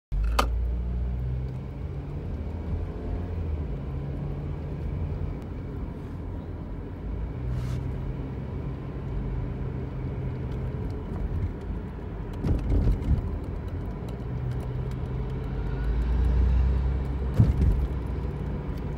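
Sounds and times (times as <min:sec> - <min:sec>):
car cabin rumble: 0:10.6 - 0:14.1, 0:17.1 - 0:18.9.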